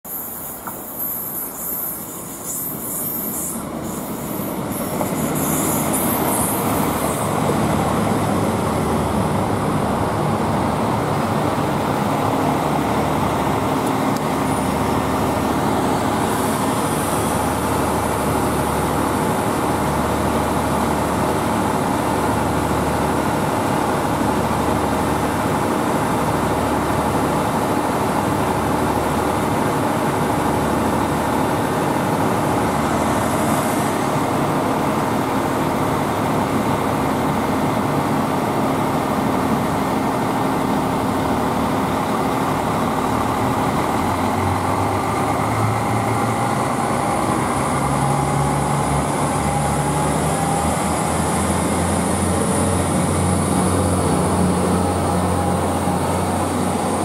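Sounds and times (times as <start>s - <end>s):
train brakes squealing: 0.1s - 7.4s
diesel engines humming: 0.1s - 57.0s.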